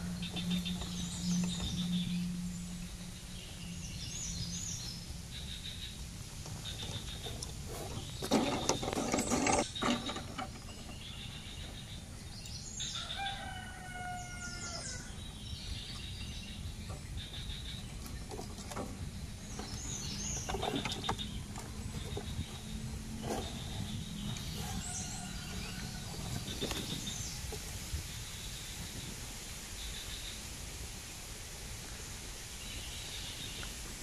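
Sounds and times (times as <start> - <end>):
outdoor background noise: 0.0 - 34.0
handling noise of wire trap: 7.2 - 10.9
rooster crowing: 12.9 - 15.2, 24.5 - 26.4.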